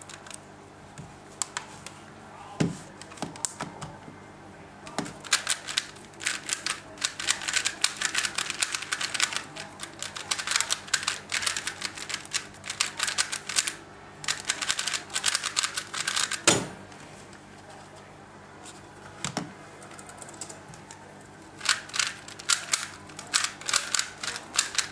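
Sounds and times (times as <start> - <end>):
puzzle cube clicking turns: 5.2 - 16.4, 21.6 - 24.9.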